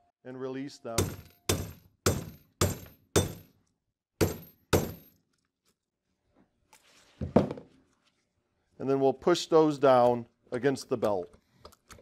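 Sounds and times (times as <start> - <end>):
hammer striking metal rivets: 1.0 - 5.4.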